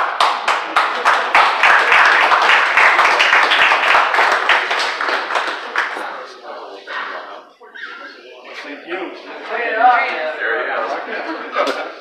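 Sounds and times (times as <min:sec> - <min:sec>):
crowd applauding: 0:00.0 - 0:06.5.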